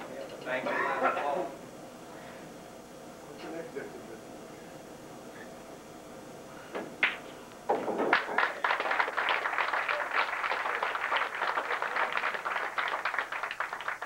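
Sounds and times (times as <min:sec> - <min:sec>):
crowd applauding: 0:08.1 - 0:14.0.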